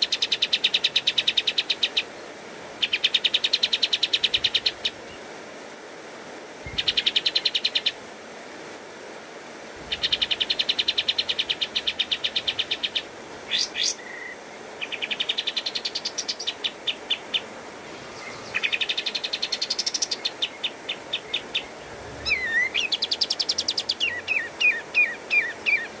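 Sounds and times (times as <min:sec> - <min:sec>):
bird singing rattling trills: 0:09.8 - 0:26.0
downslurred bird notes: 0:20.9 - 0:26.0
looped bird whistle: 0:22.2 - 0:23.1.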